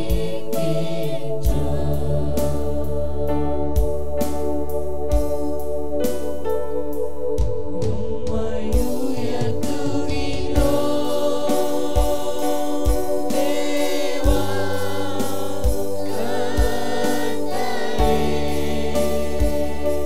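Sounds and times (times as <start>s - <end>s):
worship music with deep beat: 0.0s - 20.0s
men and women singing together: 8.2s - 20.0s.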